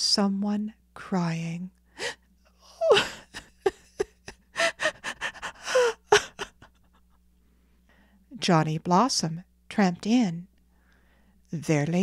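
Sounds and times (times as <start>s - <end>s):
woman sobbing: 2.0s - 7.2s.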